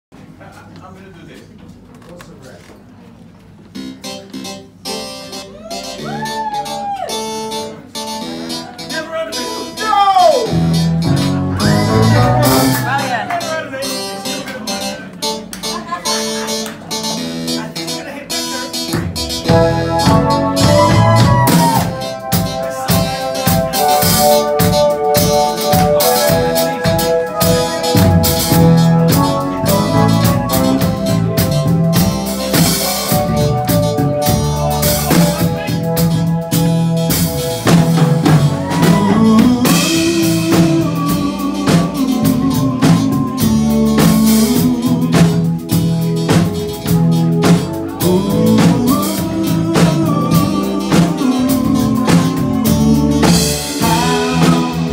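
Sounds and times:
keyboard chords: 3.5 - 54.9
drum kit: 3.7 - 54.9
low bass line: 10.5 - 13.2, 19.0 - 54.9.

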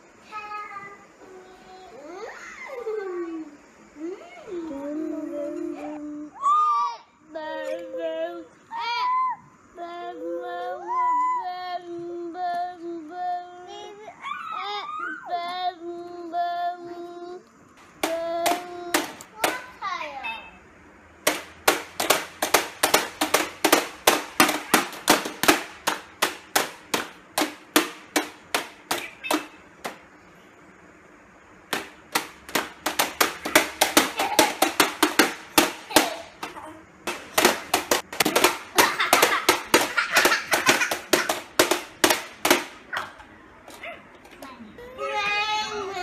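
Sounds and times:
toy mallets knocking on plastic: 18.0 - 19.7, 21.2 - 30.0, 31.7 - 43.2.

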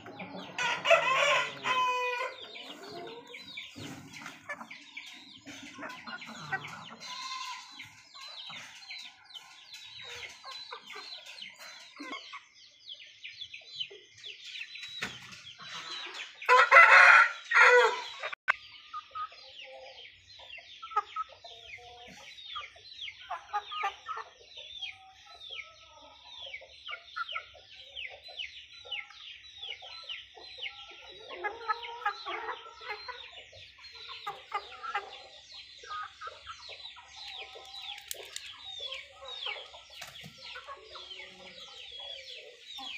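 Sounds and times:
chickens clucking: 0.0 - 42.9
rooster crowing: 0.8 - 2.4, 16.5 - 18.2.

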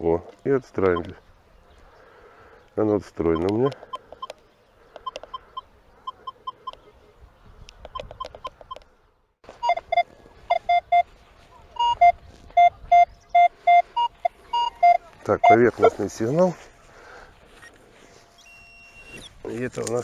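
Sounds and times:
metal detector beeping: 3.3 - 4.4, 5.0 - 6.8, 7.9 - 8.8, 9.5 - 11.1, 11.8 - 16.0, 18.3 - 19.3.

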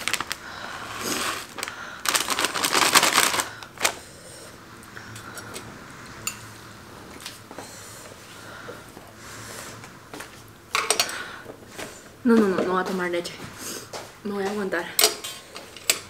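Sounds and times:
plastic packet crinkling: 0.0 - 4.0.

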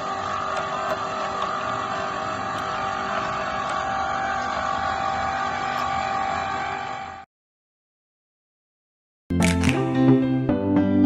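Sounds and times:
electric hoist motor whine: 0.0 - 7.3.

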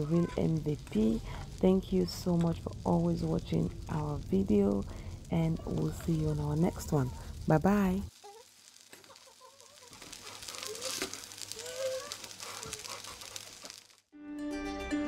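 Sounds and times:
faint sizzling: 0.0 - 14.2
music: 14.2 - 15.0.

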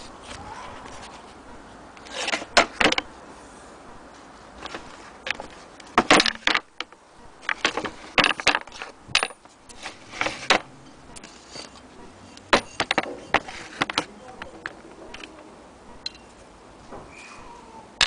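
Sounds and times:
small hard parts knocking on wood: 4.6 - 11.4, 12.4 - 15.4
hands handling wooden cabinet: 4.6 - 15.4.

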